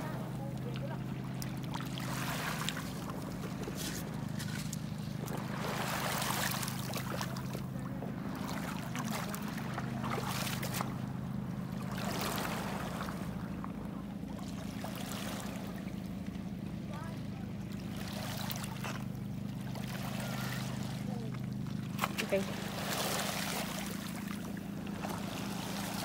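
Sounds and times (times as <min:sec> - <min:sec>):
small waves washing over pebbles: 0:00.0 - 0:07.6, 0:17.8 - 0:26.0
steady low hum: 0:00.0 - 0:26.0.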